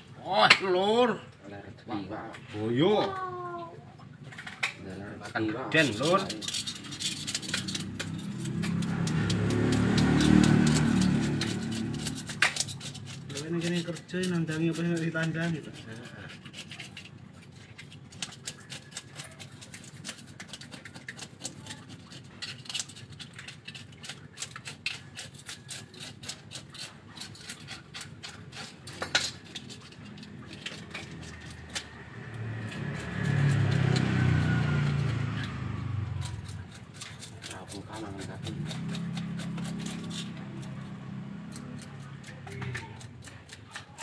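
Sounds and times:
knife scraping fish scales: 4.2 - 44.0
low engine hum: 31.1 - 36.7.

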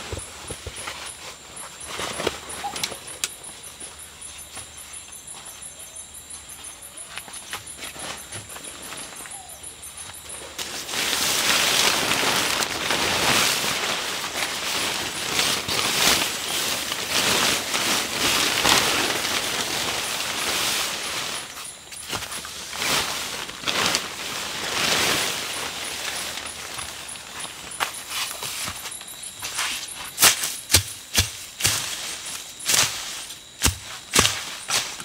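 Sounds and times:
crickets chirping: 0.0 - 35.0
tent fabric rustling and swishing: 10.3 - 35.0.

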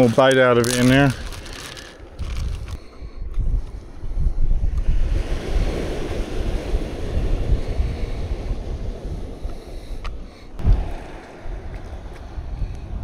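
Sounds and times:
wind gusting across microphone: 0.0 - 13.0
waves washing on shore: 4.9 - 13.0.

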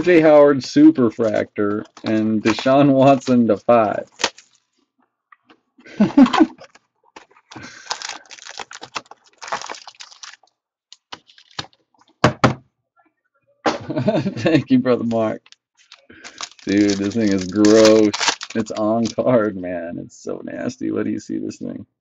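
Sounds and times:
packs scraping and rustling: 1.2 - 4.7, 6.6 - 10.4, 11.0 - 11.8, 15.1 - 19.2.

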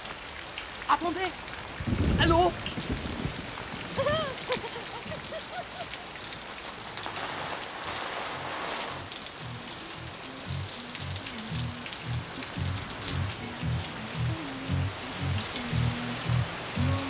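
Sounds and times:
steady rain falling: 0.0 - 17.0
pulsing bass music: 9.4 - 17.0.

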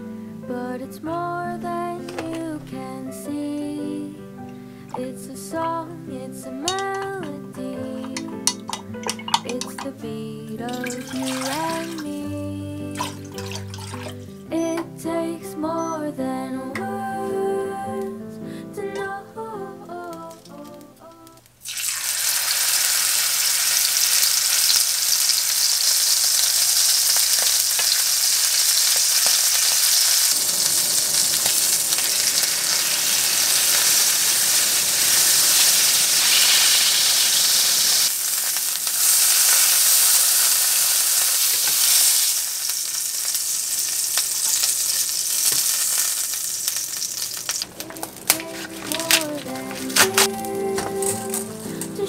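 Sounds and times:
soft background music: 0.0 - 21.4, 47.8 - 52.0
steak sizzling in frying pan: 6.6 - 9.9, 10.8 - 12.3, 21.6 - 52.0.

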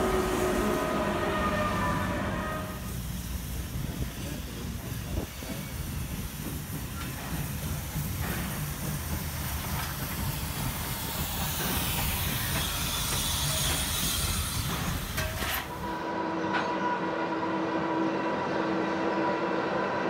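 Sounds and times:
steam hissing: 0.0 - 16.0
low rumble of train: 0.0 - 20.0.

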